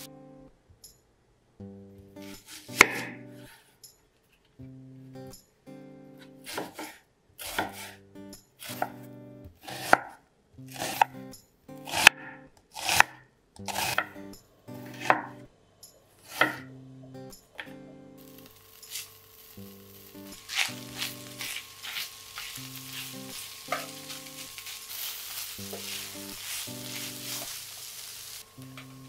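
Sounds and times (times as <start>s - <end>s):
knife slicing onion on wooden board: 2.2s - 3.5s, 6.2s - 8.0s, 8.6s - 11.2s, 11.8s - 14.2s, 14.8s - 15.4s, 16.2s - 16.7s, 18.8s - 19.2s, 20.4s - 27.6s.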